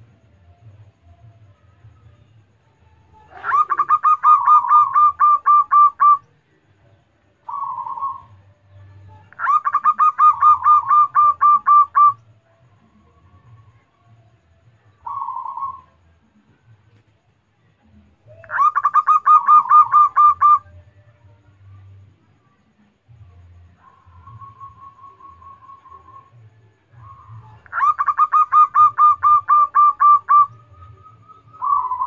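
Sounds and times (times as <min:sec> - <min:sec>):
dove cooing: 0:03.1 - 0:06.3, 0:07.4 - 0:08.5, 0:09.2 - 0:12.2, 0:15.0 - 0:16.0, 0:18.2 - 0:20.8, 0:23.8 - 0:32.0.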